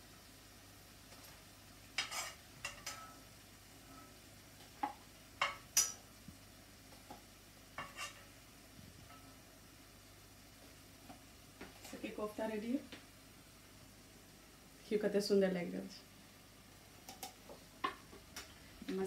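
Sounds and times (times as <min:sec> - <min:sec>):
metal spoon clinking on dishes: 0:02.0 - 0:03.2.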